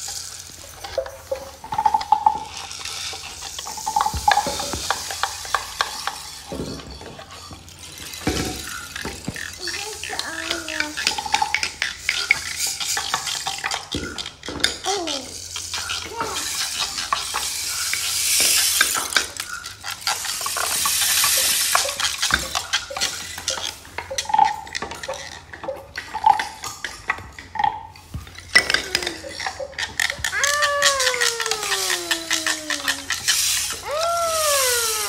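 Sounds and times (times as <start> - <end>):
rain stick hissing: 0.0 - 6.6, 30.2 - 35.0
wooden percussion rattling: 0.0 - 35.0.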